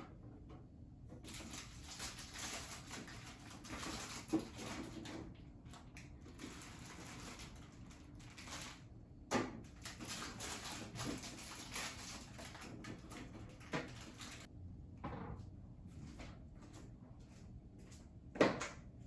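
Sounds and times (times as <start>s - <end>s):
plastic bags rustling: 1.2s - 8.9s, 9.6s - 14.5s.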